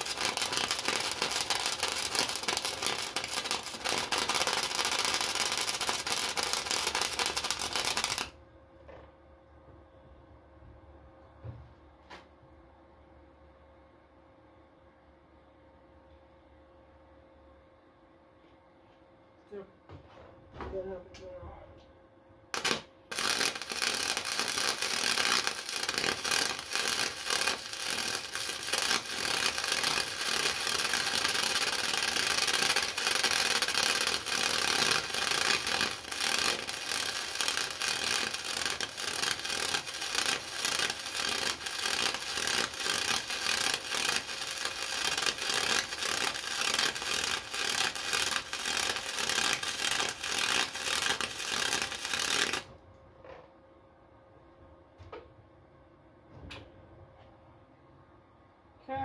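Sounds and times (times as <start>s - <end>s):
welding arc crackling: 0.0s - 8.4s, 22.5s - 52.7s.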